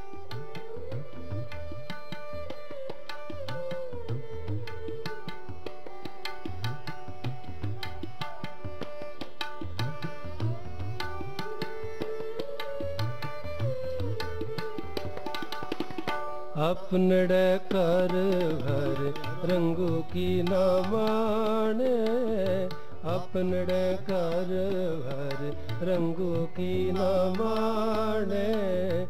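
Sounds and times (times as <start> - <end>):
harmonium melody: 0.0 - 29.0
tabla playing: 0.0 - 29.0
person singing: 16.6 - 29.0.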